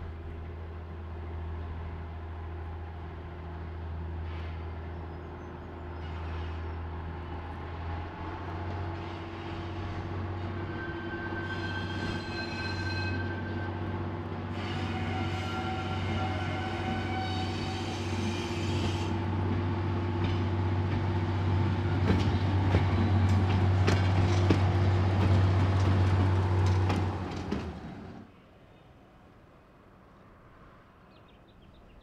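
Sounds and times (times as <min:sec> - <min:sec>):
diesel railcar engine droning: 0:00.0 - 0:28.3
wheel squeals: 0:09.0 - 0:13.7
wheels clicking over rail joints: 0:22.0 - 0:28.2.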